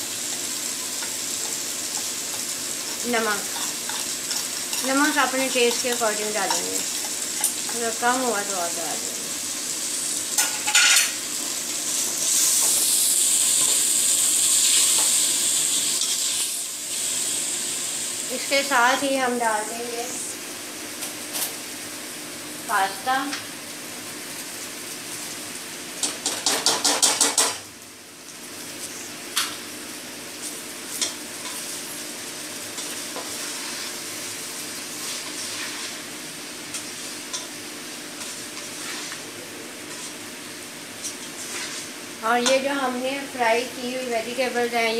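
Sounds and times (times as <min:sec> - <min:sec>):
food sizzling in a frying pan: 0:00.0 - 0:44.9
spoon knocking against pot: 0:26.2 - 0:27.6.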